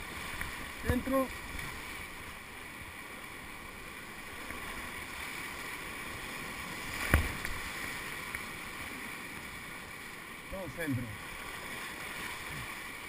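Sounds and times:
sharp thump: 7.0s - 7.5s.

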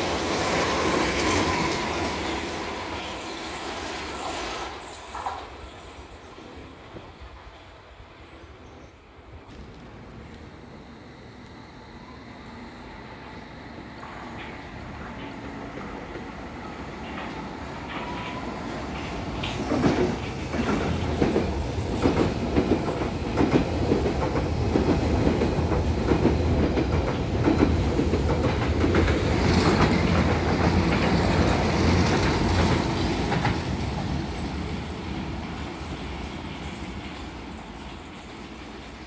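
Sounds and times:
train low rumble: 6.7s - 39.0s
train wheels clattering: 14.0s - 35.0s.

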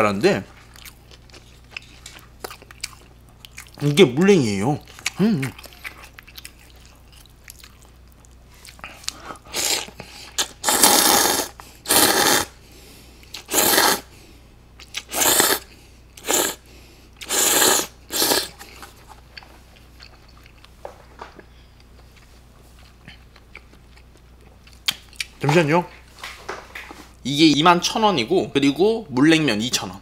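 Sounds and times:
quiet chewing: 0.5s - 3.9s, 4.8s - 10.6s, 14.8s - 16.4s, 18.2s - 25.4s
loud noodle slurping: 9.4s - 12.6s, 13.4s - 14.1s, 15.0s - 16.6s, 17.2s - 18.7s.

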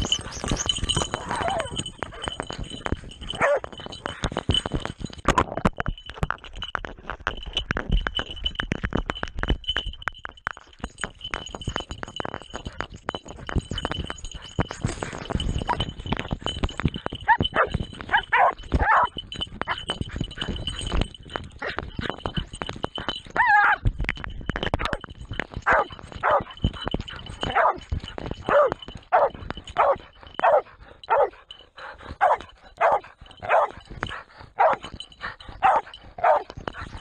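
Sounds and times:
dog barking: 3.4s - 3.7s, 17.3s - 19.1s, 27.5s - 27.8s, 28.5s - 31.3s, 32.2s - 33.8s, 34.6s - 34.8s, 35.6s - 36.5s.

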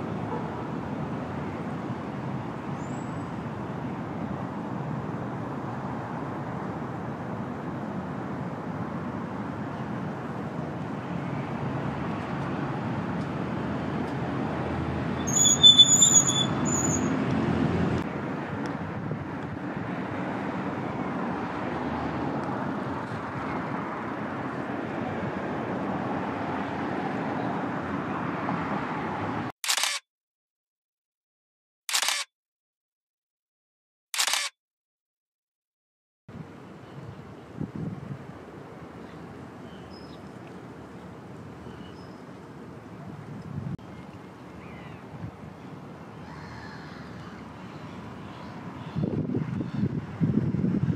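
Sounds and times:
road traffic rumble: 0.0s - 30.0s, 36.3s - 50.9s
high squeal: 15.2s - 17.2s.

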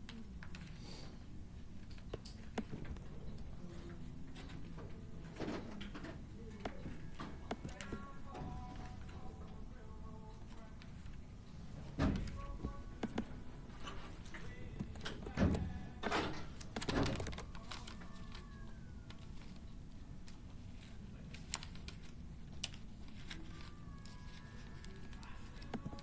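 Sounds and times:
classroom room noise: 2.7s - 19.6s, 22.6s - 26.0s
laptop keyboard typing: 12.4s - 13.4s, 14.4s - 19.7s, 20.8s - 26.0s.

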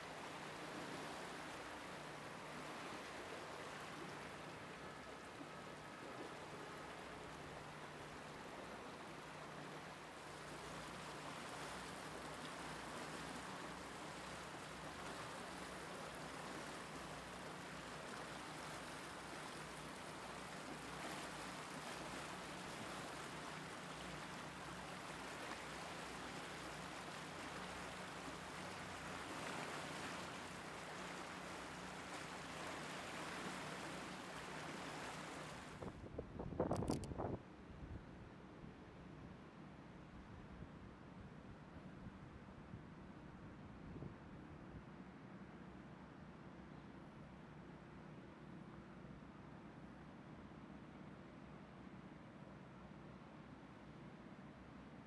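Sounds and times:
river rushing: 0.0s - 35.8s.

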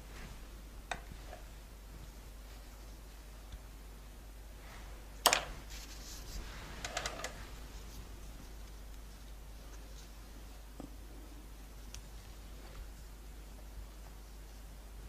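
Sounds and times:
light clicks and taps: 11.8s - 12.9s.

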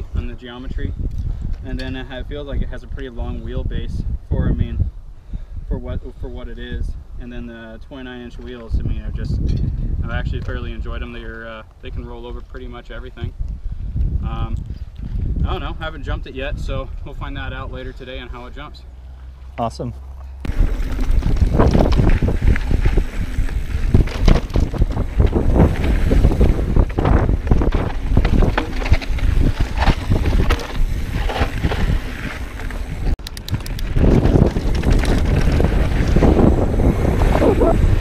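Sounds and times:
wind buffeting microphone: 0.0s - 18.2s, 20.5s - 38.0s
bike knocks and rattles: 20.5s - 37.4s.

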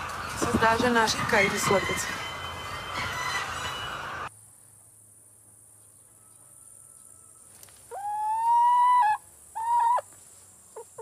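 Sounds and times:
chicken calling: 6.2s - 11.0s.

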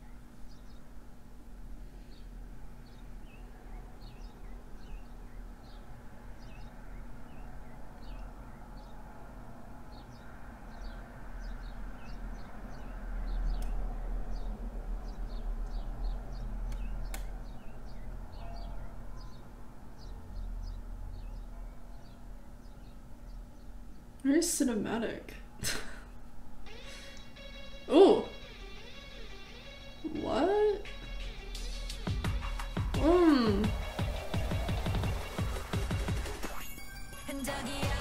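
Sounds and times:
small birds chirping: 0.0s - 36.6s
sharp clicks: 13.6s - 13.8s, 16.7s - 17.4s.

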